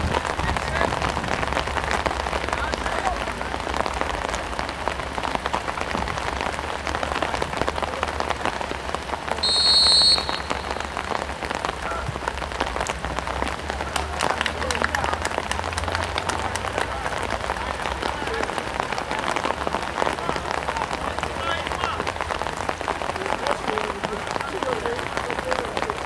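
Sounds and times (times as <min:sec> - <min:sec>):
crackling patter and hiss: 0:00.0 - 0:26.0
referee's whistle: 0:09.4 - 0:11.0.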